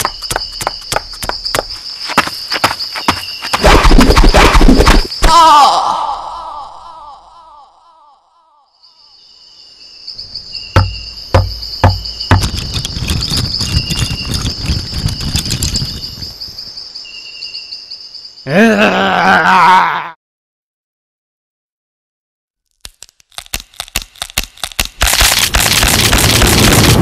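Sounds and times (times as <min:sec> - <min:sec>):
insects chirring: 0:00.0 - 0:19.7, 0:23.3 - 0:27.0
sharp knocks: 0:10.8 - 0:12.8
crackling and rustling: 0:12.2 - 0:16.4, 0:22.7 - 0:27.0.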